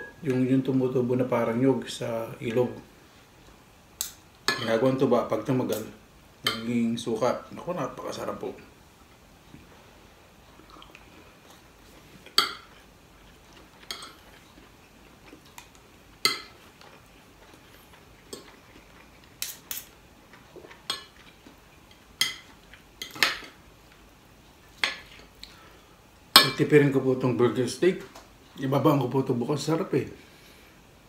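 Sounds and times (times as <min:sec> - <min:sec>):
cutlery clinking on a plate: 0:13.8 - 0:14.2.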